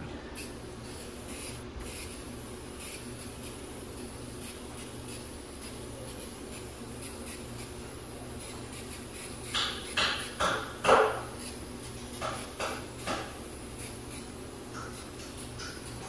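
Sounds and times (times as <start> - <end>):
hammer striking a nail: 9.5 - 11.2, 12.2 - 13.3.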